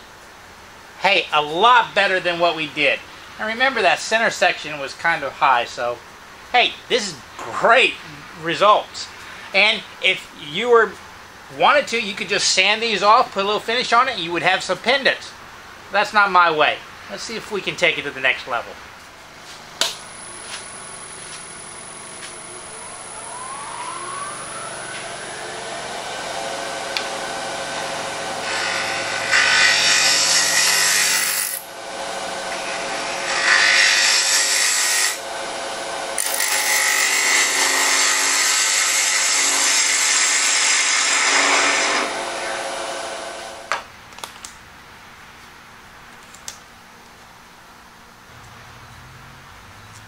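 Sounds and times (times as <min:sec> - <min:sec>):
lathe motor whining: 0:19.9 - 0:39.6.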